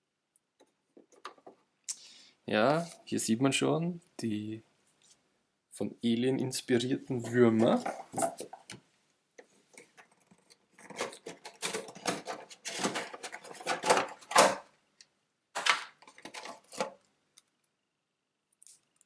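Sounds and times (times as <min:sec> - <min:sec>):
plastic tray clicks and rustles: 0:09.7 - 0:14.7, 0:15.6 - 0:17.0.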